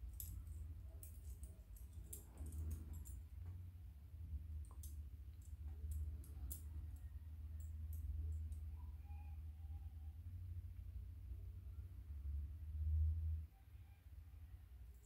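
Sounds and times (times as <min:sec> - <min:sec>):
metal loops and chain clinking: 0:00.0 - 0:03.6
low steady hum: 0:00.0 - 0:15.0.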